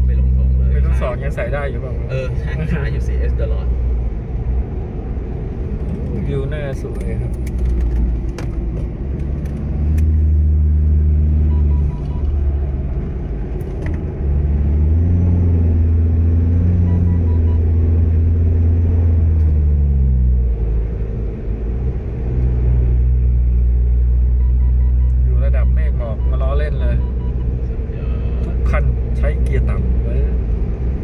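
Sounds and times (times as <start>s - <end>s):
car engine drone in cabin: 0.0s - 31.0s.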